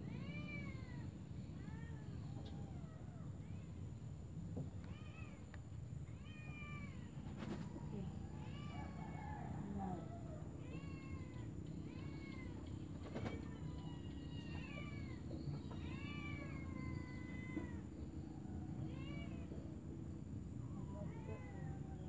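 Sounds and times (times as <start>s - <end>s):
low steady hum: 0.0s - 22.0s
animal meow-like cries: 4.8s - 19.7s.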